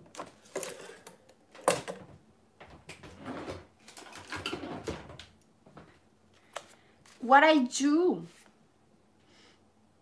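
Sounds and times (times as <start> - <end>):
things clattering and rustling: 0.0 - 6.0.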